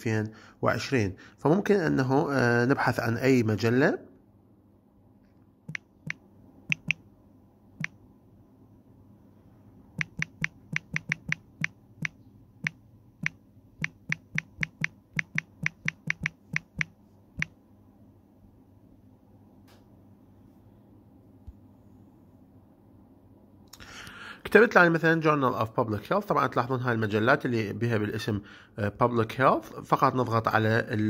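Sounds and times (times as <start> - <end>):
smartphone keyboard typing clicks: 5.7 - 7.0, 10.0 - 17.5.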